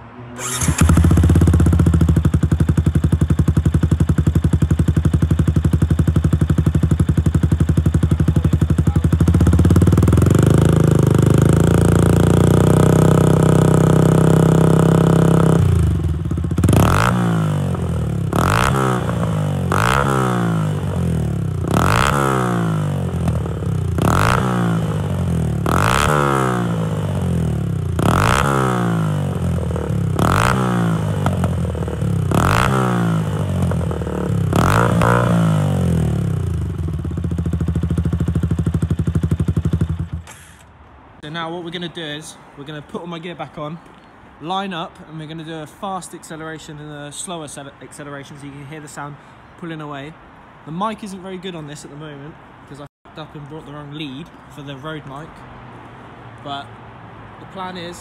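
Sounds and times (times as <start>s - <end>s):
motorcycle engine revving: 0.0s - 40.6s.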